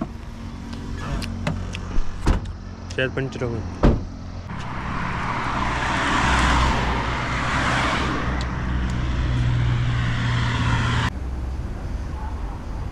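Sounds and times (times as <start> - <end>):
low engine hum: 3.7 - 12.2
vehicle passing close by: 4.5 - 11.1.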